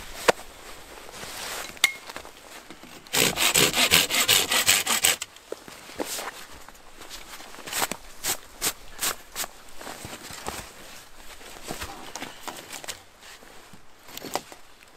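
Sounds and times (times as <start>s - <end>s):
hand saw cutting wood: 3.1s - 5.3s.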